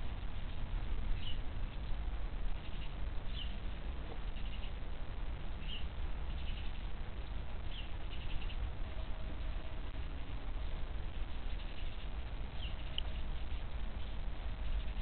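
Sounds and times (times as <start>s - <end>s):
small bird chirping: 1.1s - 4.8s, 5.6s - 6.9s, 7.6s - 9.6s, 11.3s - 15.0s
buzzy bird calls: 5.6s - 6.9s, 7.6s - 8.8s, 11.4s - 15.0s.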